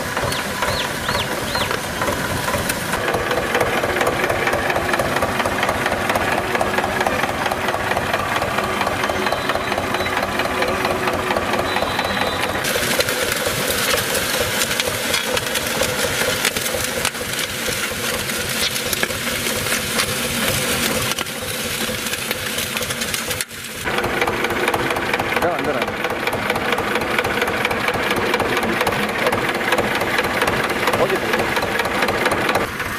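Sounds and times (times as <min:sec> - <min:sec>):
tractor diesel engine clattering: 0:00.0 - 0:32.9.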